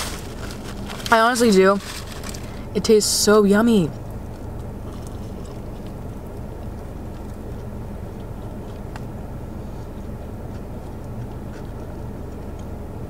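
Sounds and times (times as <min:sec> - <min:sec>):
chewing clicks: 0:03.9 - 0:13.0.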